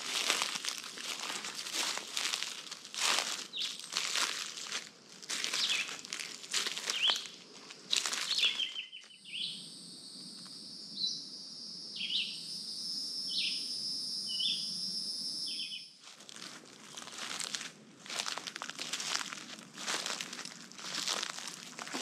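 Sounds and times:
footsteps crunching through dry leaves: 0:00.0 - 0:09.2, 0:16.0 - 0:22.0
high insect drone: 0:00.0 - 0:22.0
bird short downward-slurred calls: 0:08.3 - 0:09.6, 0:12.0 - 0:12.5, 0:13.3 - 0:14.8, 0:15.4 - 0:16.0.

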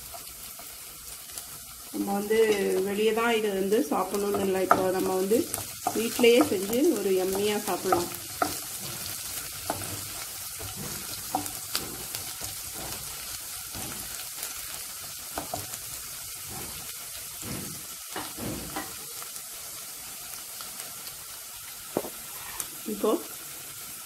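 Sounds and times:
ginger and garlic sizzling in oil: 0:00.0 - 0:24.0
wooden spatula scraping a pan: 0:03.9 - 0:19.0.

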